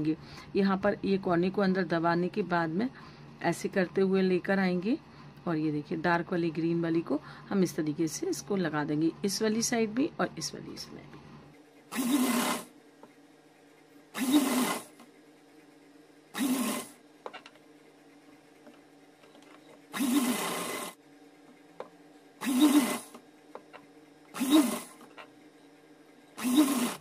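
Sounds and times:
sewing machine stitching: 11.9 - 12.7, 14.1 - 15.1, 16.3 - 17.0, 19.7 - 21.0, 22.4 - 23.2, 24.3 - 25.3, 26.4 - 27.0.

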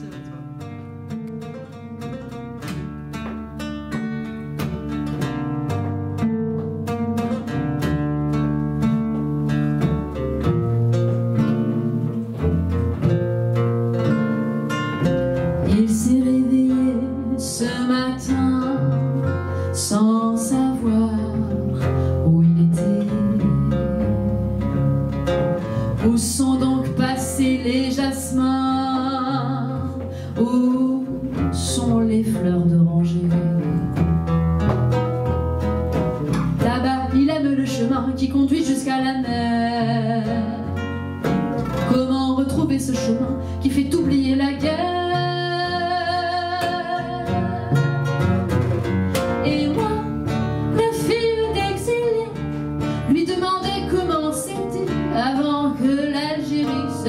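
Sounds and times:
acoustic guitar plucking: 0.0 - 57.0
cello: 0.0 - 57.0
woman singing: 15.4 - 24.8, 26.0 - 34.1, 36.4 - 41.0, 41.7 - 48.2, 49.2 - 57.0.

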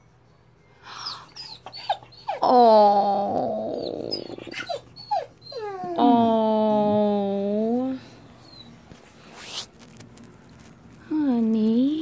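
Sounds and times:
puppy whining: 0.9 - 8.9
puppy howling: 1.0 - 7.4.

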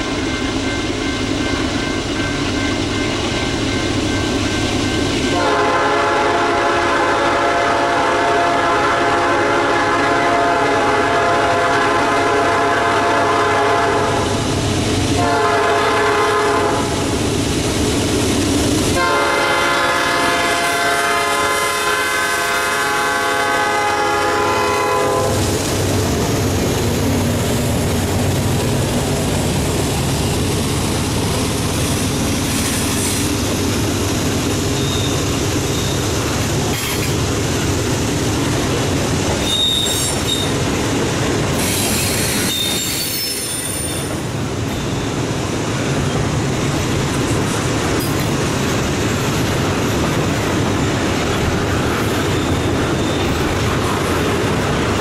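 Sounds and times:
train cars rolling by: 0.0 - 55.0
locomotive horn blasts: 5.3 - 14.4, 15.2 - 17.1, 18.9 - 25.6.

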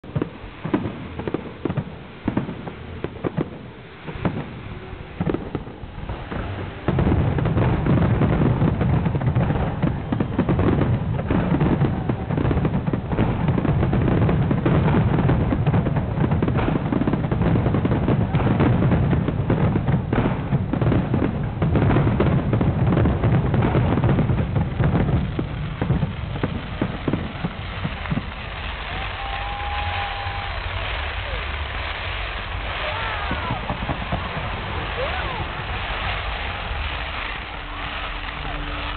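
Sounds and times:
fireworks bangs and crackling: 0.0 - 38.9.

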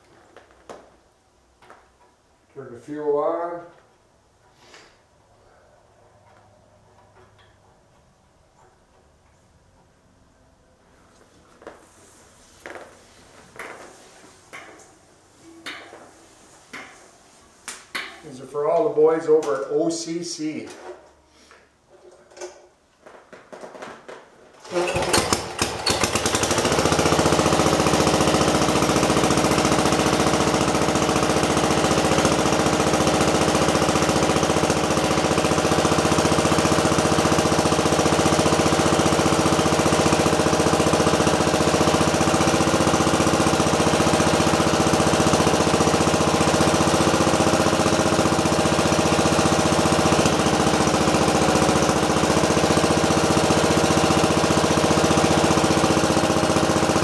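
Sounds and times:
single-cylinder engine running: 24.6 - 57.0.

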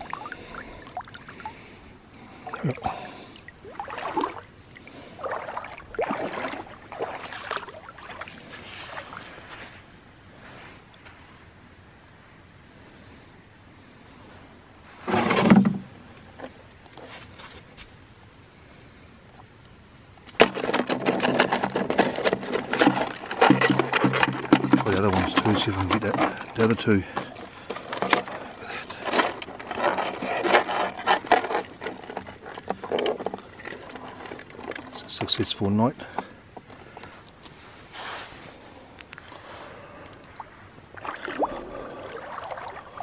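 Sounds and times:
water gurgling: 0.0 - 1.7, 2.4 - 8.4, 40.3 - 43.0
water splashing and sloshing: 0.0 - 9.9, 14.9 - 17.7, 20.3 - 43.0
crayfish scrabbling in plastic bin: 20.3 - 36.7.

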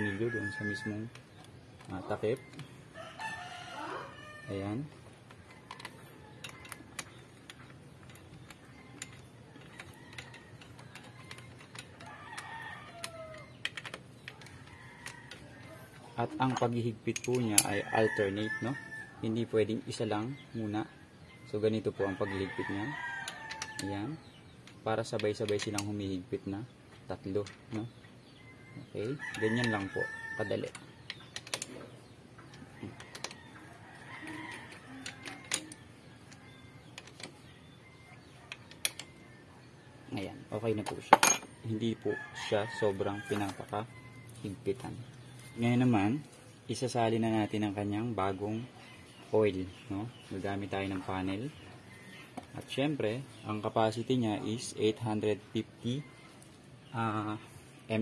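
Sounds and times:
rooster crowing: 0.0 - 1.1, 2.9 - 4.9, 17.7 - 19.3, 29.0 - 30.8, 32.8 - 35.8, 41.8 - 44.5
distant rooster crowing: 0.0 - 1.2, 2.1 - 7.3, 8.6 - 13.6, 17.4 - 20.3, 21.5 - 24.2, 28.4 - 31.0, 32.5 - 46.2.

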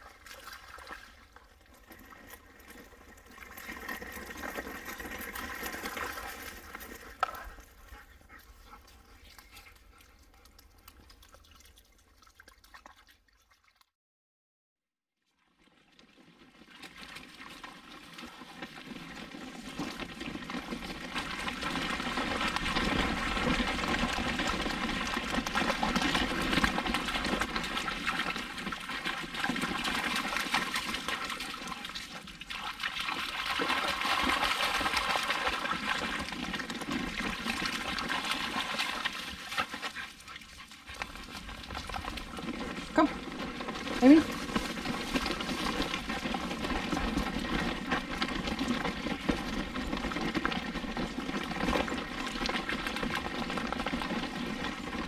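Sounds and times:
water splashing: 21.2 - 43.2.

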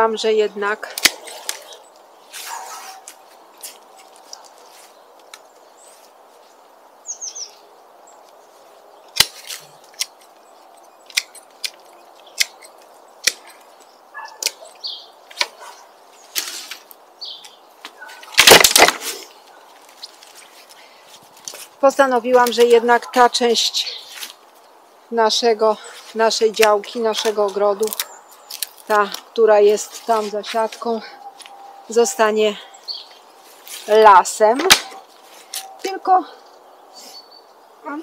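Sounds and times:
bird chirp: 0.0 - 18.4, 22.0 - 38.0
twigs rustling: 0.0 - 36.5
branches snapping: 0.8 - 5.6, 9.1 - 23.0, 26.1 - 31.6, 33.4 - 36.0.

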